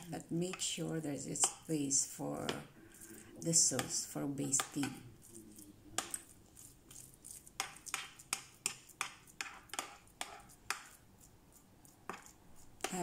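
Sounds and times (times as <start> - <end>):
metal spoon tapping enamel pan: 1.4 - 1.7, 3.7 - 5.0, 7.6 - 11.0.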